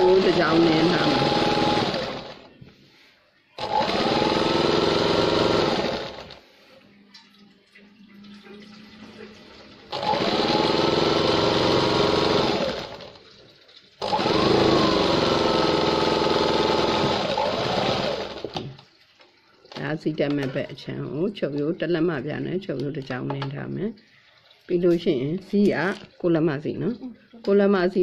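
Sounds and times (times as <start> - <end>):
sewing machine stitching: 0.0 - 2.6, 3.6 - 6.4, 9.9 - 13.2, 14.0 - 18.8.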